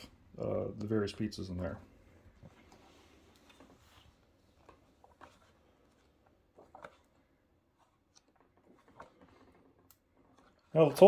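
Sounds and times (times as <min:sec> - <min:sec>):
book pages being turned: 0:02.4 - 0:11.0.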